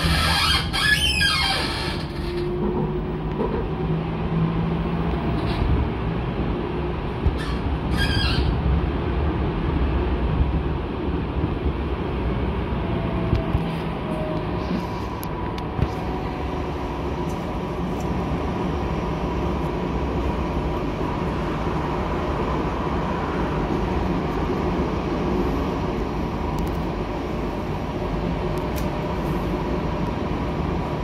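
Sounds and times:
wheels squealing: 0.0s - 2.5s, 7.4s - 8.6s
tram rumbling on track: 0.0s - 31.0s.

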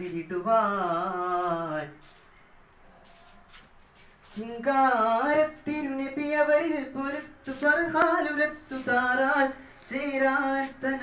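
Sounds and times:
boy singing unaccompanied: 4.4s - 11.0s.

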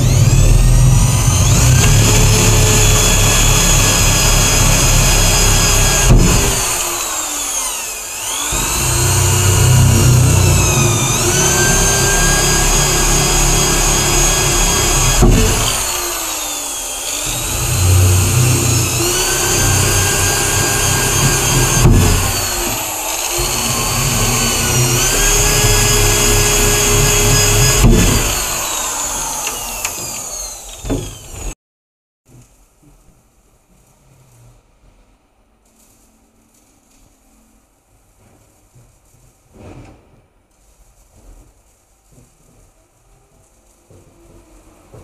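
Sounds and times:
electric drill whining: 0.0s - 31.6s.

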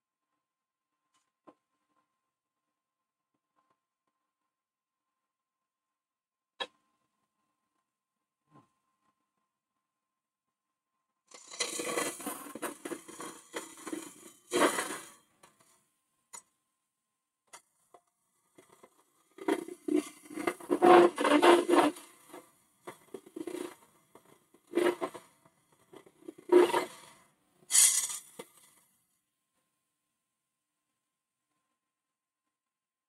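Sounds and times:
lathe tool scraping wood: 11.3s - 15.2s, 19.4s - 22.4s.

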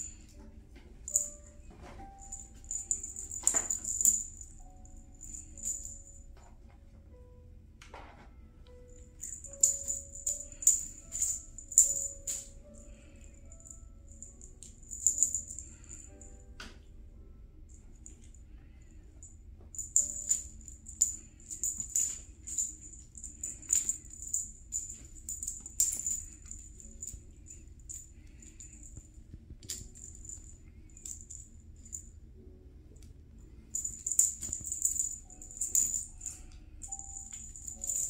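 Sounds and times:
cat toy jingling and rattling: 2.0s - 6.2s, 9.2s - 12.6s, 13.4s - 16.1s, 19.8s - 29.0s, 33.7s - 38.0s.

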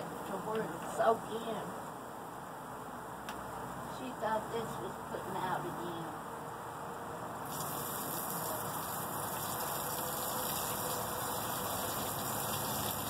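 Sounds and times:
water spraying from hose: 7.4s - 13.0s.

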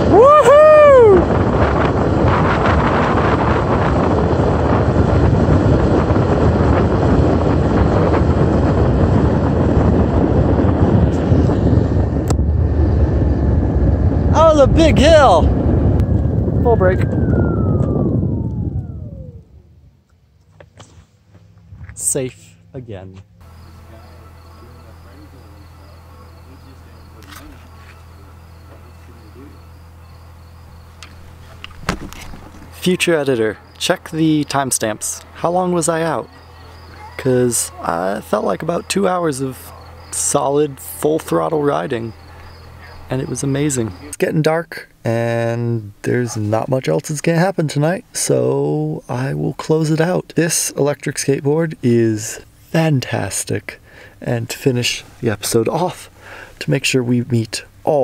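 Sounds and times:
wind buffeting microphone: 0.0s - 20.1s, 23.4s - 44.3s
steady low hum: 0.0s - 58.0s
wheels rolling on asphalt: 23.4s - 44.1s
crickets chirping: 23.4s - 46.0s.

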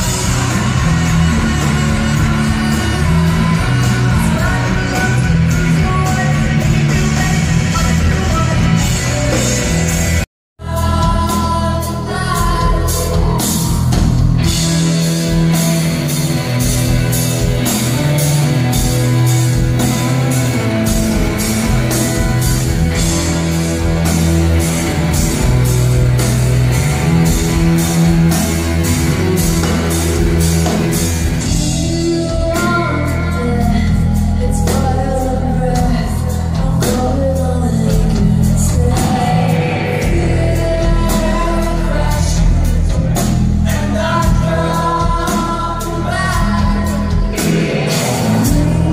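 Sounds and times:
woman singing lead vocal: 0.0s - 9.6s, 10.6s - 14.6s, 31.4s - 48.9s
drum kit beat: 0.0s - 48.9s
electric guitars: 0.0s - 48.9s.

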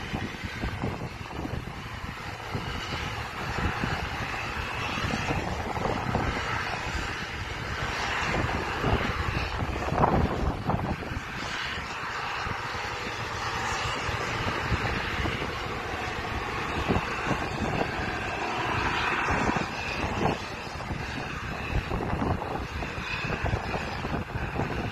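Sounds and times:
vehicle engine and driving noise: 0.0s - 24.9s.

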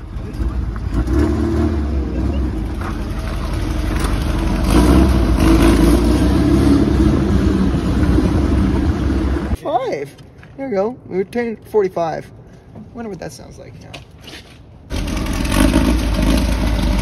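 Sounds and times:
car engine revving in garage: 0.0s - 9.6s, 14.9s - 17.0s.

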